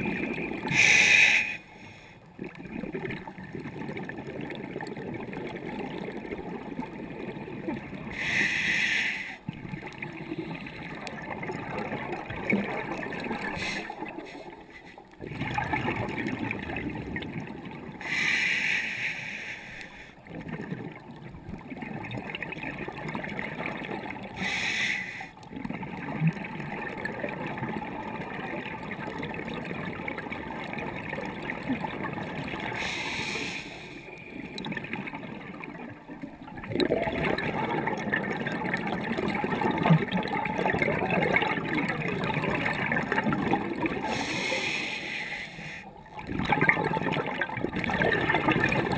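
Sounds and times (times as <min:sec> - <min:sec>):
underwater rush of water: 0:00.0 - 0:48.9
diver exhalation bubbles: 0:34.4 - 0:44.7, 0:46.1 - 0:48.9.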